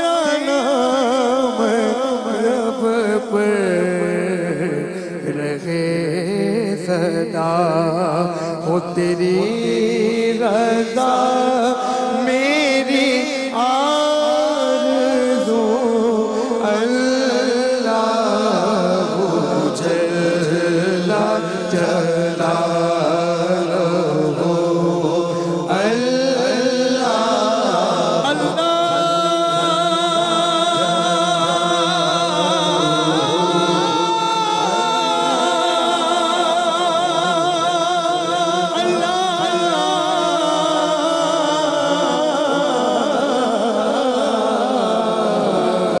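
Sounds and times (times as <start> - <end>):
layered voices singing: 18.0 - 46.0.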